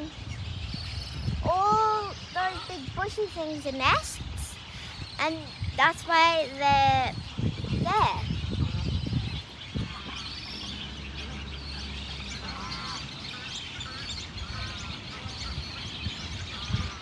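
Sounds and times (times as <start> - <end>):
waterbird colony calls and chirps: 0.0 - 17.0.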